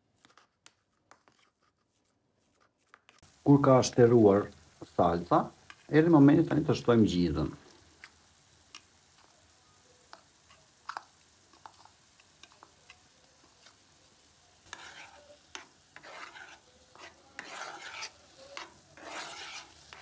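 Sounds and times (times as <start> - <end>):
spoon scraping nonstick pan: 0.2 - 3.4, 5.6 - 6.0, 7.9 - 9.3, 10.0 - 20.0.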